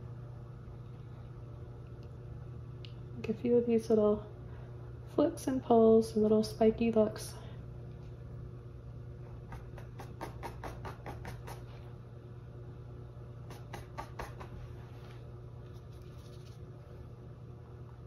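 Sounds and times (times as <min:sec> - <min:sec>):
steady low hum: 0:00.0 - 0:18.0
paintbrush flicking paint: 0:13.5 - 0:14.7.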